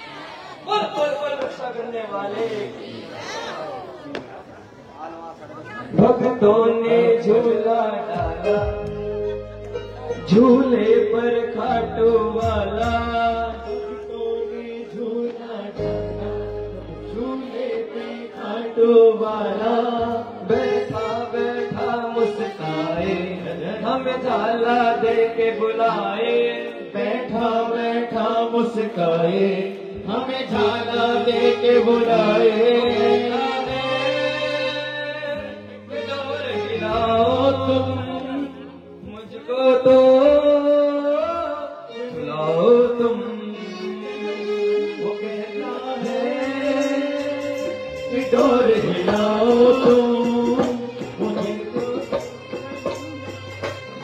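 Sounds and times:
man singing devotional song: 5.9 - 53.8
held instrumental chords: 8.1 - 18.6, 29.9 - 41.0, 43.1 - 54.0
low bass notes: 8.2 - 14.8.

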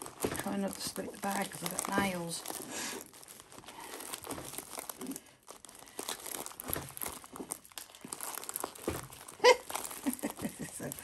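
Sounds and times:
plastic sheet crinkling: 0.0 - 11.0.

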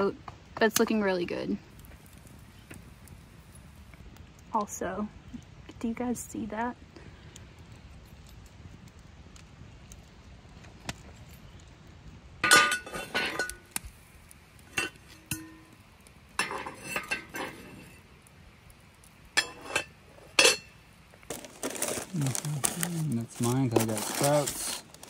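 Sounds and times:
cast iron pot and lid clinking: 12.4 - 13.8, 14.7 - 18.0, 19.3 - 20.8.

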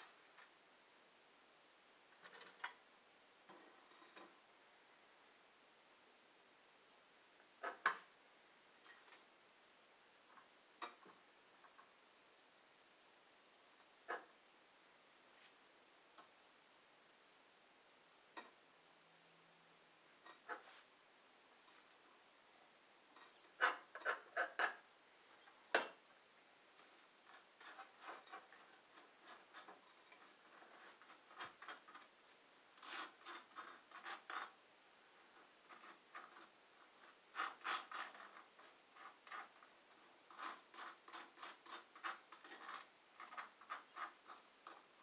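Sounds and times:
knife scraping jar: 27.6 - 32.1, 35.7 - 39.7, 40.3 - 44.8.

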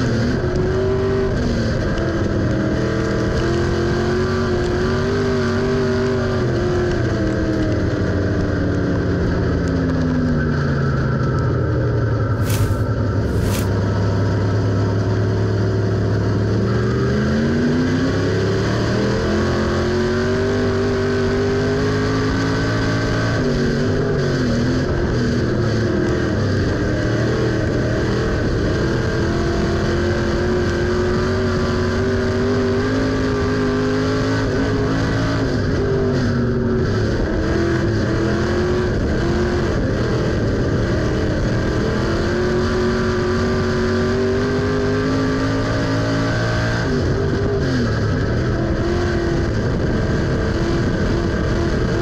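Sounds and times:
race car engine accelerating: 0.0 - 52.0.

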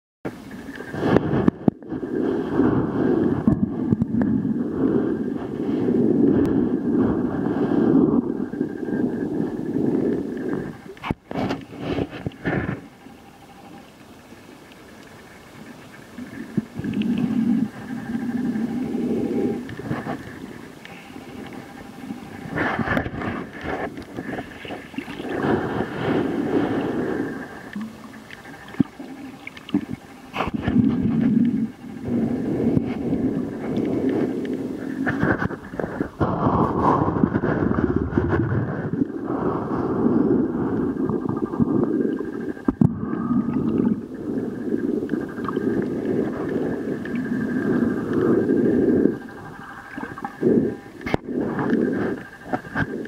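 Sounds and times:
faint steady whine: 0.3 - 53.0
muffled underwater rushing rumble: 0.3 - 53.0
underwater clicks: 15.9 - 26.2, 26.8 - 37.6, 44.7 - 53.0.

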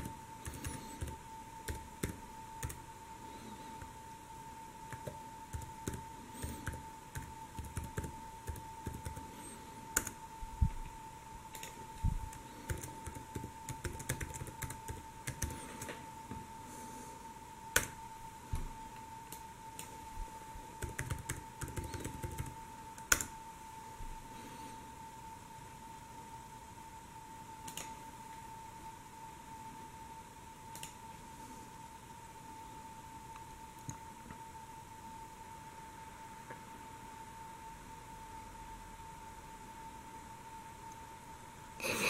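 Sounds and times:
laptop keyboard typing: 0.0 - 2.9, 4.9 - 10.2, 11.5 - 16.0, 17.7 - 18.0, 20.8 - 23.3, 27.6 - 27.9.

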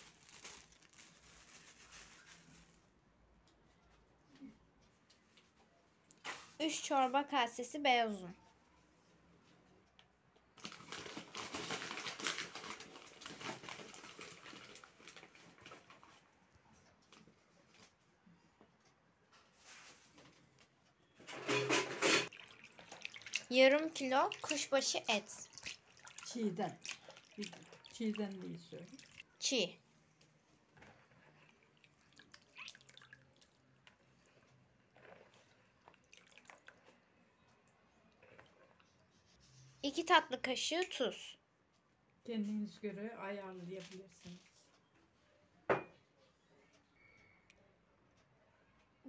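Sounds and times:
soft wet sounds: 0.0 - 6.8, 8.3 - 20.7, 22.3 - 39.9.

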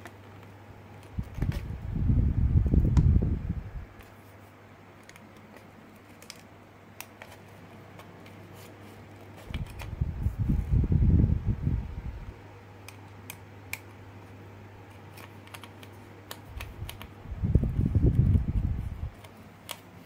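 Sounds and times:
plastic toy handling noise: 3.9 - 10.5, 12.9 - 20.0.

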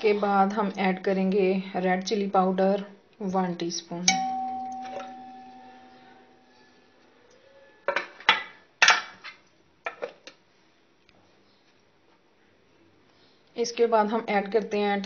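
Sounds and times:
metal spoon clinking on pot: 4.1 - 6.2.

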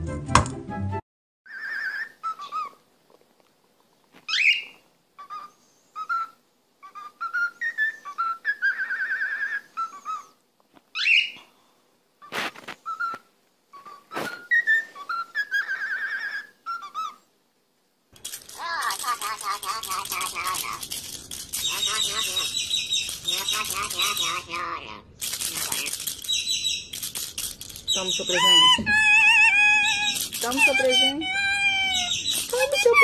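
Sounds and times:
cockatiel whistling a tune: 5.3 - 10.3, 12.8 - 17.2
sharp clicks: 18.2 - 24.4, 25.2 - 28.8, 29.8 - 31.0.

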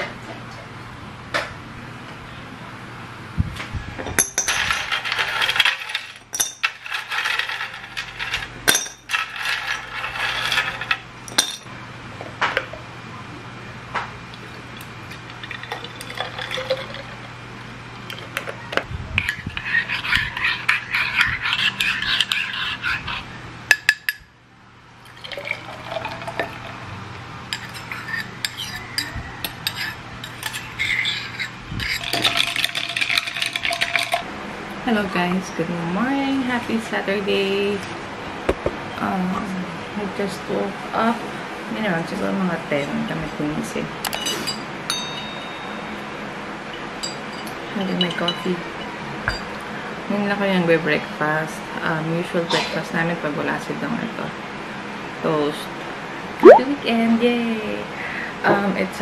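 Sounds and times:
clinks against glass bottle: 4.2 - 4.6, 6.3 - 6.6, 8.7 - 9.1, 11.3 - 11.7, 44.1 - 45.8.

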